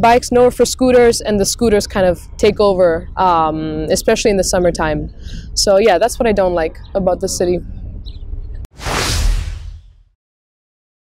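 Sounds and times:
low outdoor rumble: 0:00.0 - 0:08.7
whoosh sound effect: 0:08.7 - 0:10.0.

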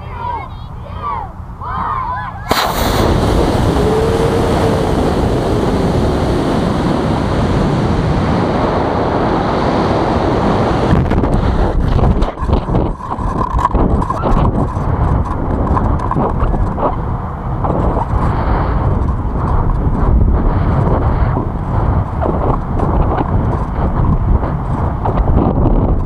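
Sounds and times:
rocket motor igniting and rushing: 0:02.5 - 0:12.9
wind buffeting: 0:02.5 - 0:26.0.

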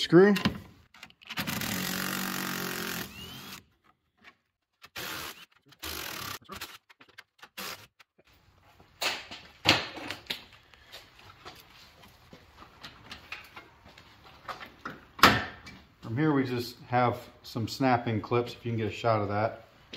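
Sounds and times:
impact driver whirring: 0:01.4 - 0:03.7, 0:04.9 - 0:06.8.

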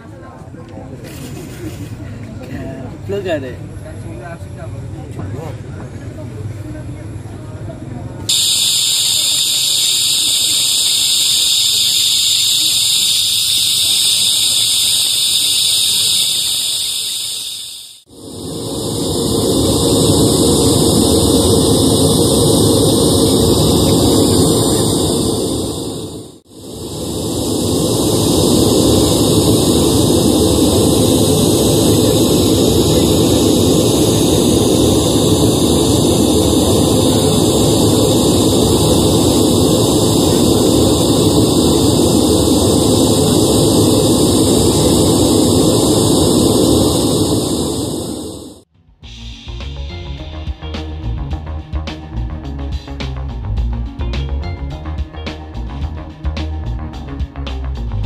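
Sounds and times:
pink noise hiss: 0:08.3 - 0:48.6
test noise through speakers: 0:08.3 - 0:48.6.

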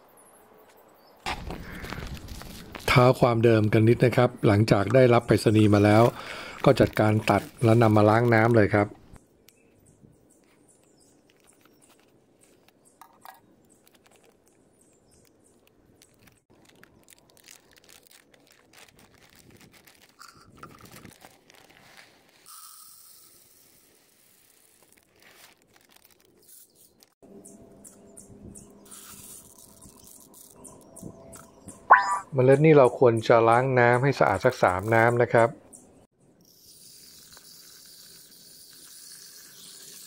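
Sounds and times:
plastic bag rustling: 0:01.3 - 0:03.0, 0:05.6 - 0:09.1, 0:15.8 - 0:22.5, 0:24.1 - 0:27.2
seeds pouring into plastic jug: 0:05.0 - 0:08.8, 0:16.6 - 0:26.6, 0:28.9 - 0:30.6, 0:36.5 - 0:40.0.

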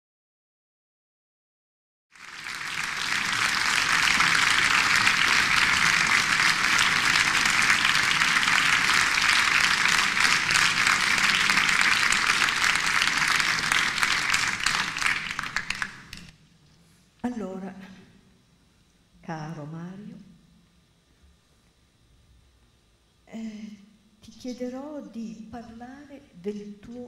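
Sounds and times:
audience applauding: 0:02.2 - 0:16.3.

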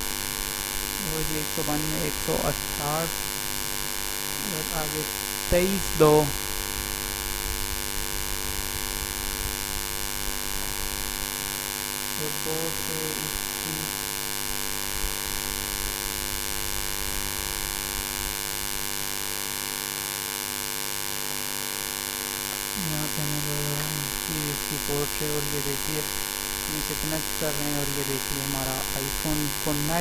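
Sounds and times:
electrical hum and hiss: 0:00.0 - 0:30.0
person speaking: 0:01.0 - 0:03.2, 0:04.4 - 0:06.4, 0:12.2 - 0:14.0, 0:22.5 - 0:26.1, 0:26.7 - 0:30.0
short voice sound: 0:04.4 - 0:06.4.

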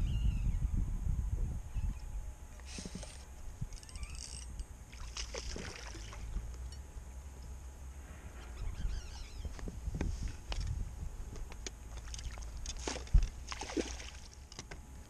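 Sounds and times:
wind and boat noise: 0:00.0 - 0:15.0
fishing reel ticking: 0:03.1 - 0:04.6
light water sounds: 0:04.9 - 0:06.7, 0:11.9 - 0:14.6.

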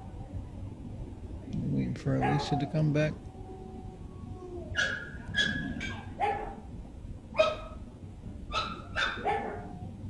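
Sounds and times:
dog whining and yipping: 0:03.4 - 0:06.6, 0:08.5 - 0:09.9.

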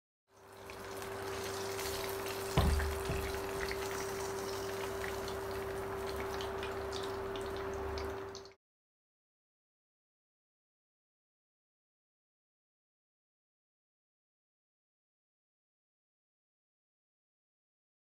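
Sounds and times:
chicken deep-frying in oil: 0:00.3 - 0:08.6
knock: 0:02.6 - 0:03.4.

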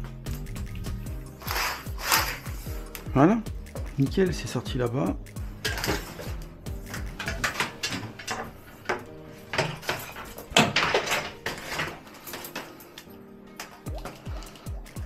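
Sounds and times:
cable scraping through plastic conduit: 0:01.4 - 0:02.7.

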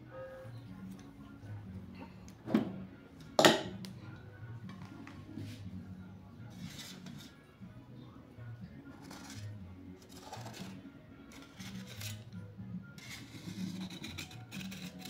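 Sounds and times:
soft background music: 0:00.0 - 0:15.0
metallic knocks on cake tin: 0:03.4 - 0:03.8.

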